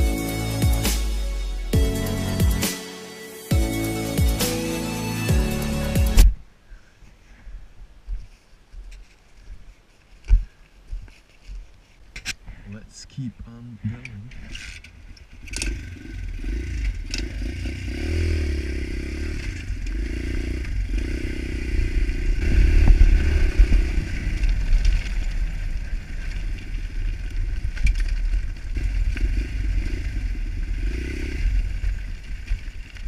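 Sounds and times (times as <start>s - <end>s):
pit bike engine running: 15.5s - 33.0s.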